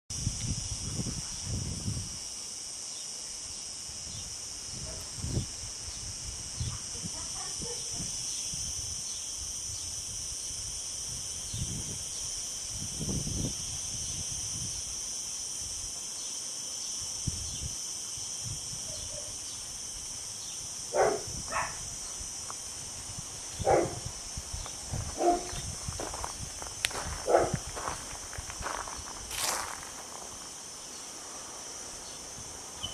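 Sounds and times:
high insect drone: 0.1s - 32.9s
dog barking: 20.9s - 21.8s, 23.6s - 24.0s, 25.2s - 25.6s, 27.2s - 27.6s.

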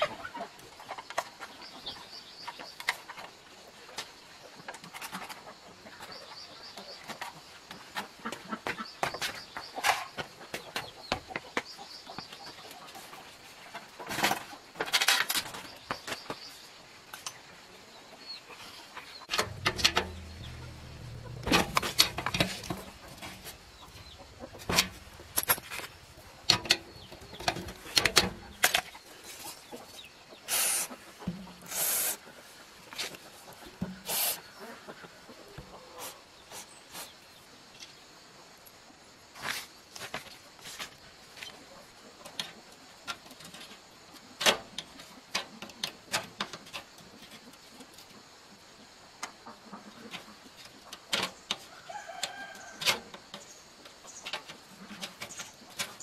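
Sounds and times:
chickens clucking: 0.0s - 14.9s, 18.4s - 36.8s, 44.8s - 56.0s
bird chirping: 19.1s - 31.9s
metal clicks and scraping: 19.3s - 29.0s.

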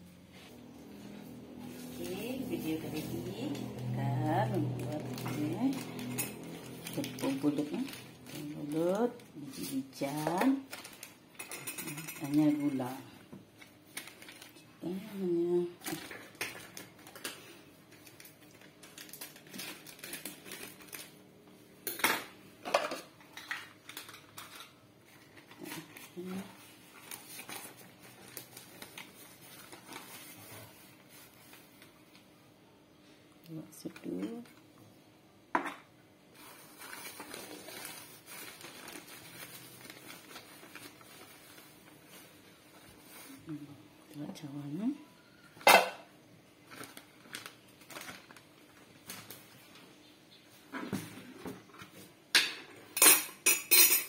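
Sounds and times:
plastic bag crinkling: 1.3s - 11.4s, 13.6s - 21.3s, 23.4s - 32.2s, 36.4s - 43.6s, 46.6s - 49.8s
plastic scoop in flour: 36.4s - 43.6s.

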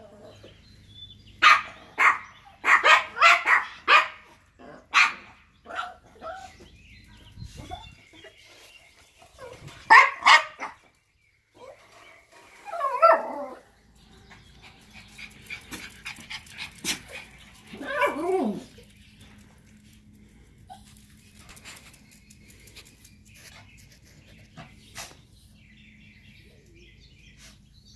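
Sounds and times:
small dogs barking: 1.4s - 6.6s, 9.4s - 10.9s, 12.7s - 13.6s, 14.8s - 18.9s.

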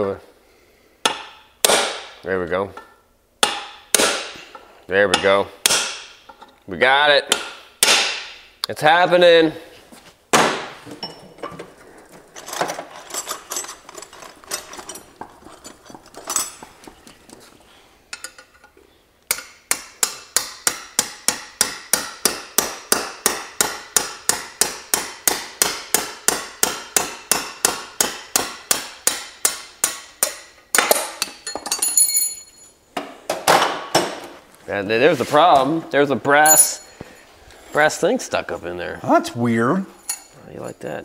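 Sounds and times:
tools clinking: 10.9s - 17.4s, 18.1s - 19.6s, 30.4s - 32.8s, 36.4s - 37.1s, 40.0s - 40.4s
hammer tapping metal punch: 19.3s - 31.8s.

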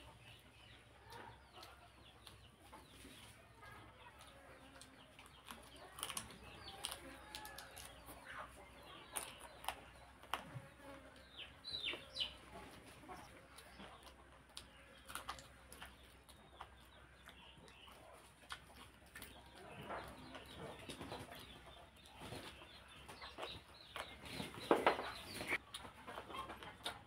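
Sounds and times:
chewing and lip smacks: 1.0s - 2.9s, 4.0s - 10.6s, 13.1s - 24.2s, 25.1s - 27.0s.

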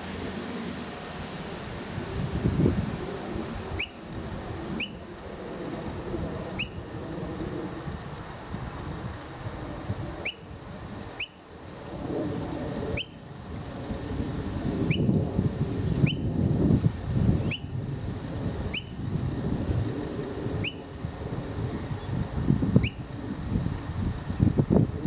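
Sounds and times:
fledgling bird begging calls: 3.8s - 4.0s, 4.8s - 5.0s.

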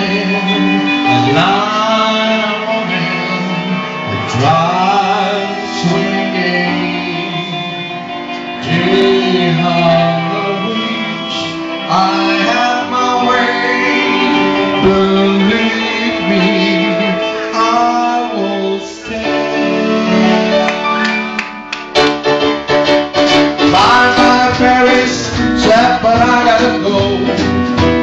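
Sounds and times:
person singing long notes: 0.0s - 21.1s
live rock and roll band: 0.0s - 28.0s.

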